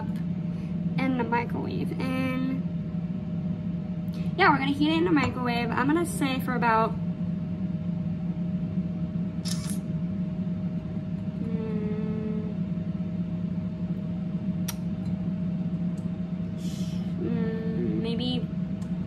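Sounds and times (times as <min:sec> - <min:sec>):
air fryer fan hum: 0:00.0 - 0:19.0
faint high whine: 0:00.0 - 0:19.0
sharp click: 0:09.4 - 0:09.8.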